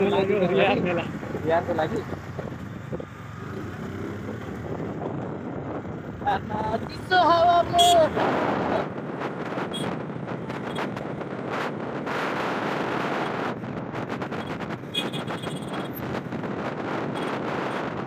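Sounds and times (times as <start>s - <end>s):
wind buffeting microphone: 0.6s - 18.0s
person calling out: 6.2s - 8.2s.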